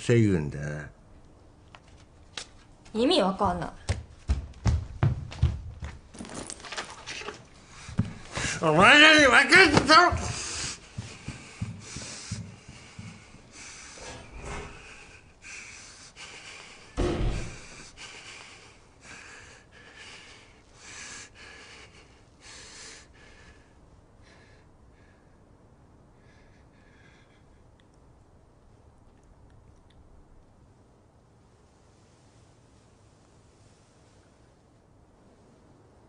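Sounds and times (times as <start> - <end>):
person breathing hard: 10.2 - 27.8
heavy thump: 17.0 - 17.8.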